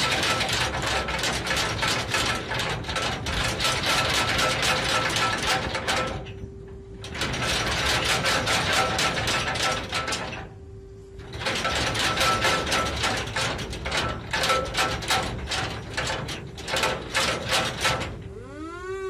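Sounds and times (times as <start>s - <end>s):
rising siren-like tone: 18.3s - 19.0s.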